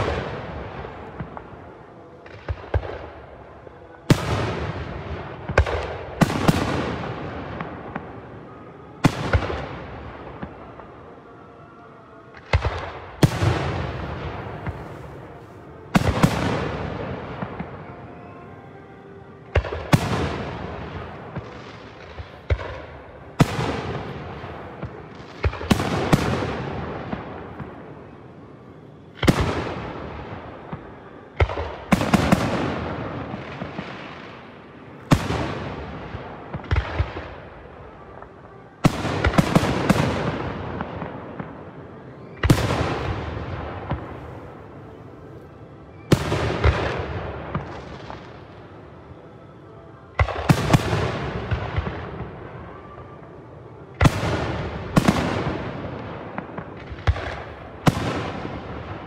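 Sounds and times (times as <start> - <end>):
fireworks bursting with echoing bangs: 0.0 - 59.0.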